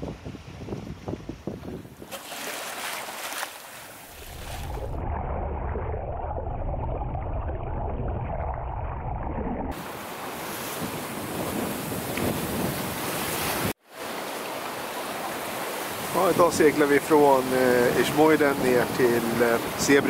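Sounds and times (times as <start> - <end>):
wind noise: 0.0 - 2.2, 4.1 - 13.8
rushing sea: 0.0 - 20.0.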